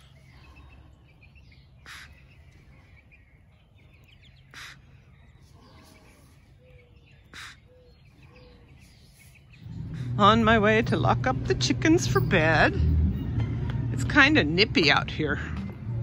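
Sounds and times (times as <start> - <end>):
soft bird chirping: 0.0 - 10.2
harsh bird calls: 0.0 - 13.9.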